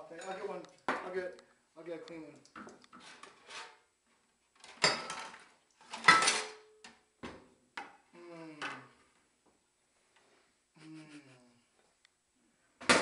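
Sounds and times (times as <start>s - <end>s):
dishes clattering in a sink: 4.7s - 6.7s.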